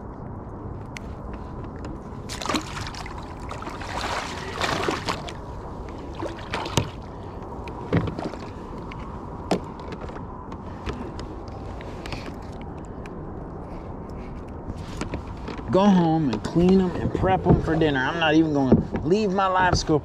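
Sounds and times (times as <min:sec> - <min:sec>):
fish splashing in water: 0:02.3 - 0:07.3.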